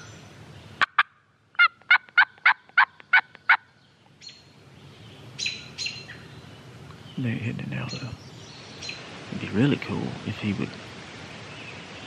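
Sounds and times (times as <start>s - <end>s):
turkey call clucks: 0.8s - 3.7s
turkey call yelps: 0.8s - 4.4s.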